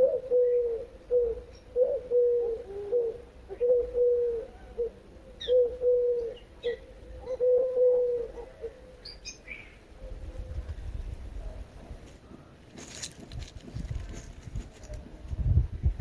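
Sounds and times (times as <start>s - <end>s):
small birds chirping: 0.0s - 7.6s, 8.3s - 11.4s
dove cooing: 0.0s - 12.5s.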